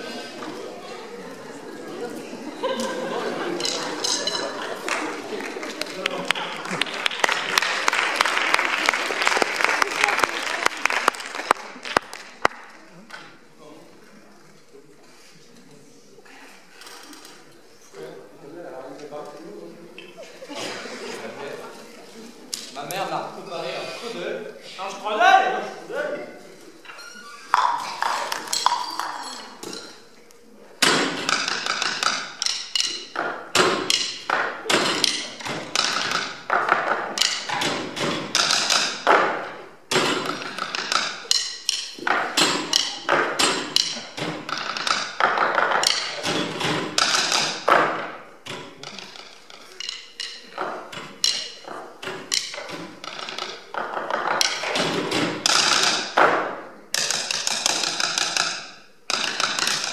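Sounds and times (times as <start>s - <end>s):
drumsticks tapping on tables: 30.8s - 59.9s.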